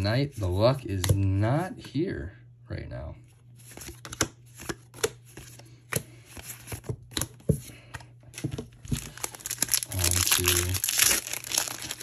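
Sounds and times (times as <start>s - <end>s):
trading cards flipped by hand: 3.6s - 7.4s.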